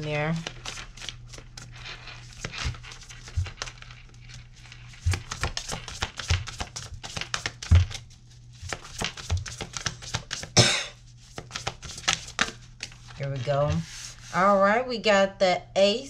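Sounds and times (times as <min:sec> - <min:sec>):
cards shuffling: 0:00.3 - 0:10.6, 0:11.2 - 0:14.3.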